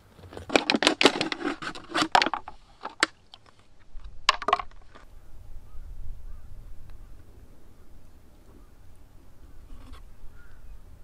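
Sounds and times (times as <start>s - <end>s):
river stones clacking together: 0.2s - 5.1s.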